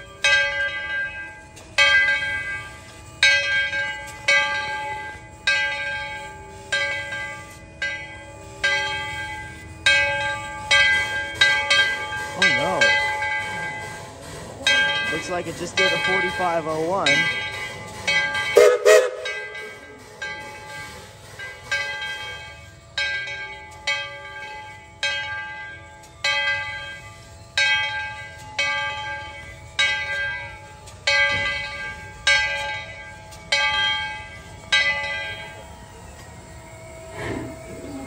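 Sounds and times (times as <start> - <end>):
steam locomotive bell ringing: 0.0 - 38.0.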